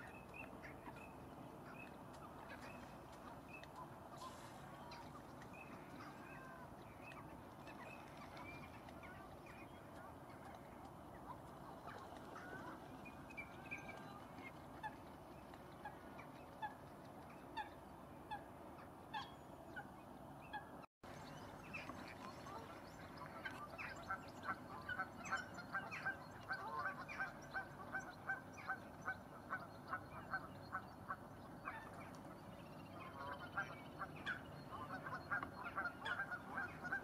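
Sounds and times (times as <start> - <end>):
geese honking: 33.0 - 37.0.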